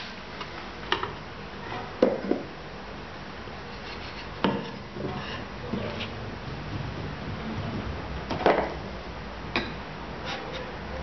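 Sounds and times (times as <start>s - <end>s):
wooden board and cup knocking: 8.3s - 8.8s.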